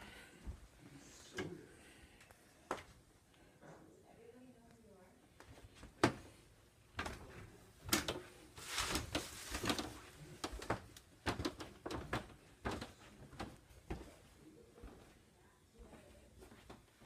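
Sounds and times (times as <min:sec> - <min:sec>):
footsteps going down stairs: 0:05.4 - 0:15.2
rustling: 0:07.4 - 0:12.1.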